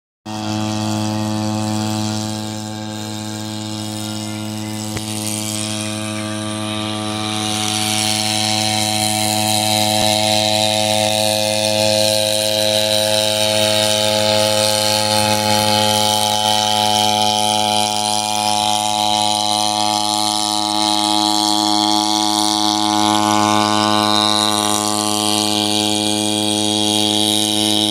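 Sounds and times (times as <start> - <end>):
drone rotors buzzing: 0.3 - 27.9
generator engine running: 0.3 - 27.9
high whine: 0.3 - 27.9.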